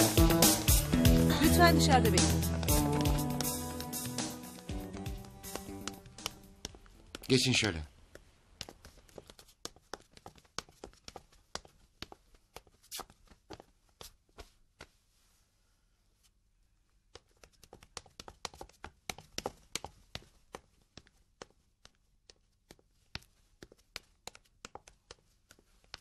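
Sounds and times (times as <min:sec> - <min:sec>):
footsteps on hard floor: 0:00.7 - 0:15.0.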